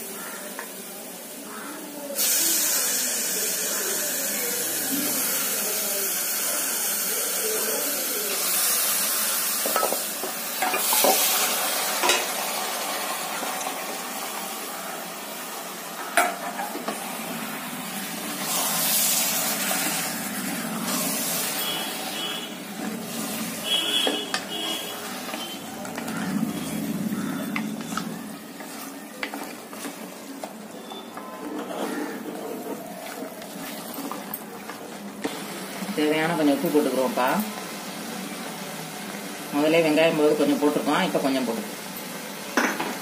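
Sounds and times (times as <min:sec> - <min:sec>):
chicken sizzling in a pot: 0:00.0 - 0:43.0
wooden spatula scraping a pot: 0:22.1 - 0:30.2, 0:31.0 - 0:34.3.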